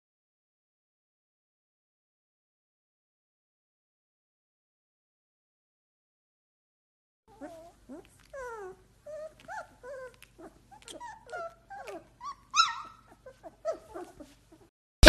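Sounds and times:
puppies whimpering and squeaking: 0:07.3 - 0:14.7.

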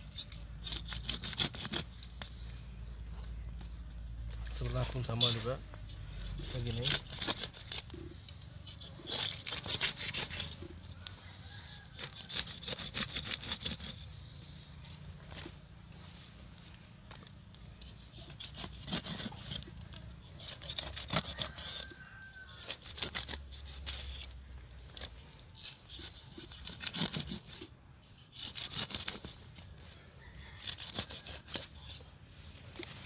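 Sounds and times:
cleaver cutting fish skin: 0:00.2 - 0:01.9, 0:06.3 - 0:07.9, 0:08.7 - 0:10.6, 0:11.9 - 0:14.0, 0:18.1 - 0:19.7, 0:20.4 - 0:21.9, 0:22.6 - 0:24.3, 0:25.0 - 0:27.7, 0:28.3 - 0:29.4, 0:30.6 - 0:32.0.

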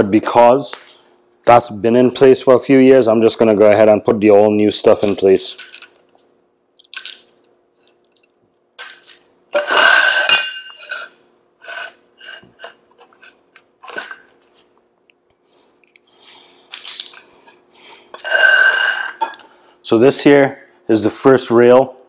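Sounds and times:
faint steady hum: 0:00.0 - 0:22.0
ringing metal scrape: 0:09.6 - 0:12.7.

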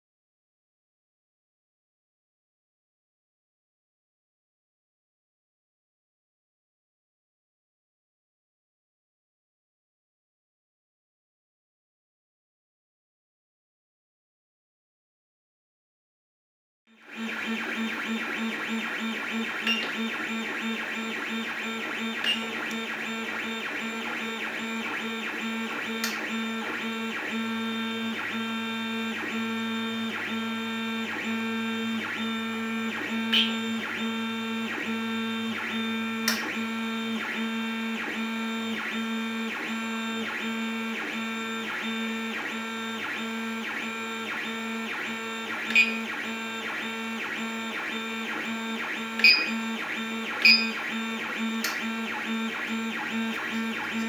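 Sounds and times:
stepper motors whining: 0:17.1 - 0:54.0.

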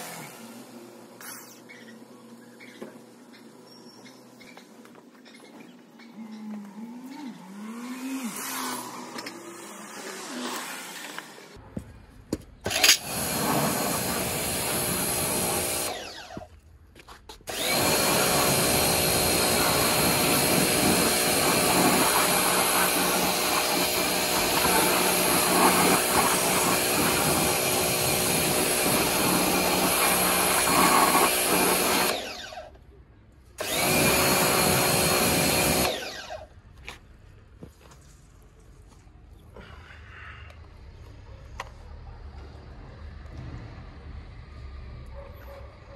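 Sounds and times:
pressure washer whine: 0:00.0 - 0:02.1, 0:12.7 - 0:16.5, 0:17.5 - 0:32.8, 0:33.6 - 0:36.5.

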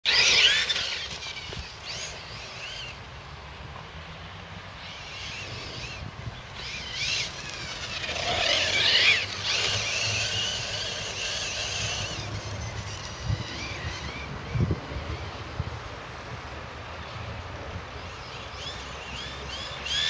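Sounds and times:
electric motor whining: 0:00.1 - 0:03.0, 0:04.8 - 0:14.6.

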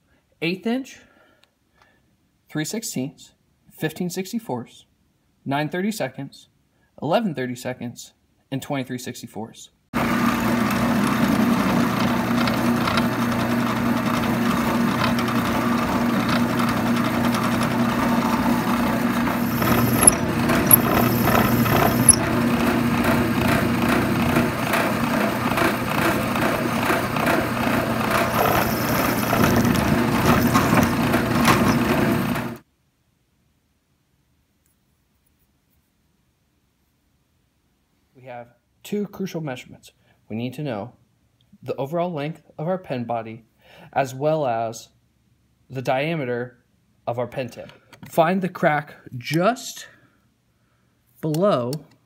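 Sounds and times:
drill press motor hum: 0:10.0 - 0:32.6
drill bit clicking in brass: 0:19.3 - 0:22.4, 0:28.2 - 0:32.4.

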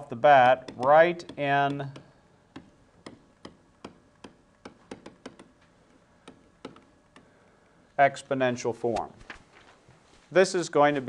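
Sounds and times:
stylus tapping on tablet: 0:00.5 - 0:05.6, 0:06.2 - 0:07.3.

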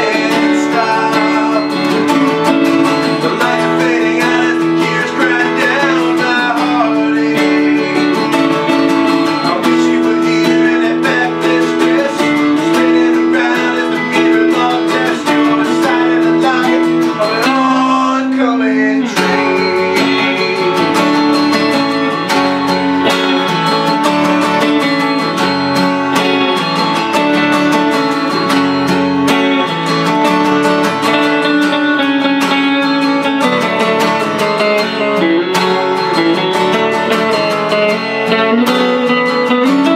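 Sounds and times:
acoustic guitar strumming: 0:00.0 - 0:39.9
electric guitar: 0:00.0 - 0:39.9.

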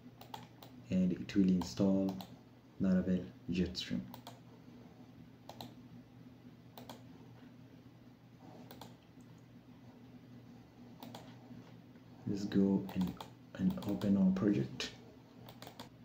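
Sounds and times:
low steady hum: 0:00.0 - 0:16.0
mouse and keyboard clicks: 0:00.2 - 0:00.8, 0:05.5 - 0:05.8, 0:06.8 - 0:07.1, 0:08.6 - 0:09.0, 0:11.0 - 0:11.3, 0:12.9 - 0:14.2, 0:15.4 - 0:15.9.

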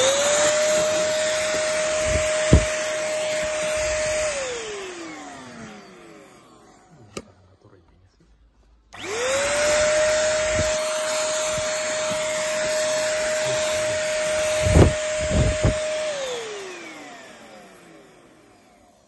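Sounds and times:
vacuum cleaner motor whine: 0:00.0 - 0:07.6, 0:08.9 - 0:19.0
short knocks: 0:02.0 - 0:02.8.

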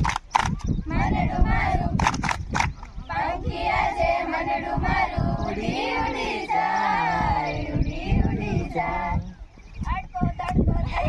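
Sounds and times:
women singing in unison: 0:00.9 - 0:02.0, 0:03.1 - 0:09.4.

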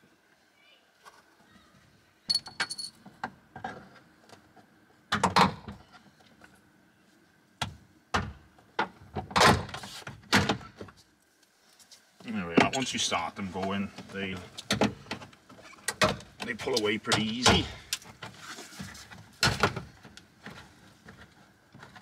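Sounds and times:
metallic clink: 0:02.3 - 0:03.0.

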